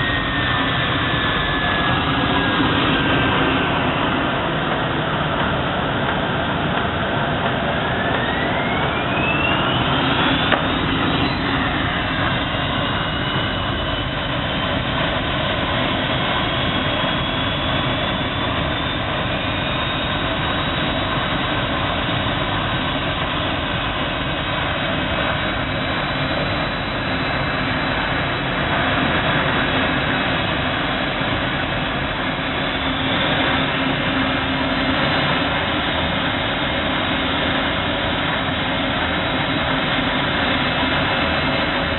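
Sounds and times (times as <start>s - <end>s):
motor whine: 0.0s - 41.9s.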